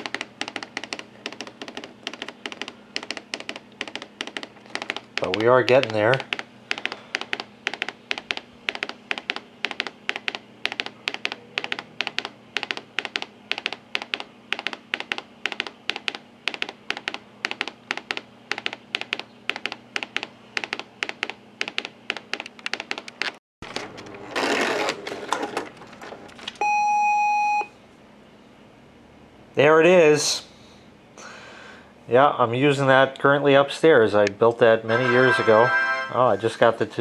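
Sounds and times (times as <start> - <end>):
fax machine printing clicks: 0.0 - 26.7.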